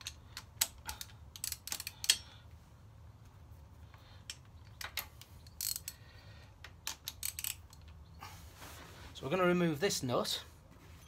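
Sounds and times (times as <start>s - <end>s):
socket ratchet clicking: 0.0s - 2.3s, 4.3s - 6.0s, 6.6s - 8.0s.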